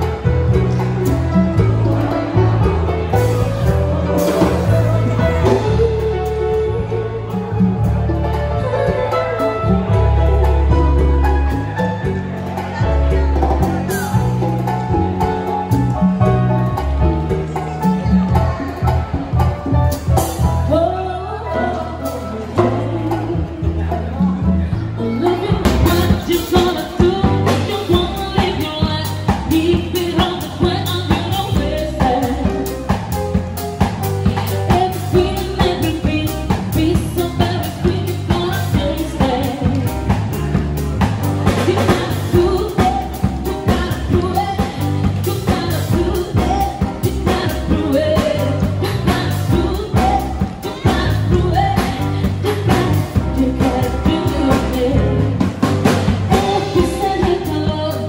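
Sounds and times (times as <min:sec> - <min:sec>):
drum kit: 0:00.0 - 0:58.0
piano: 0:00.0 - 0:58.0
woman singing into a microphone: 0:04.7 - 0:07.6, 0:20.3 - 0:33.1, 0:34.1 - 0:40.2, 0:41.4 - 0:58.0.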